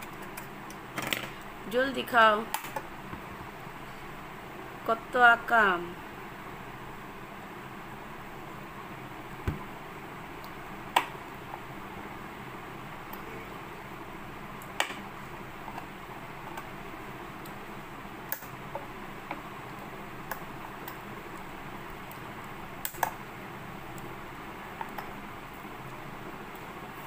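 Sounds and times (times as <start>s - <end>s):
low room hum: 0.0s - 27.0s.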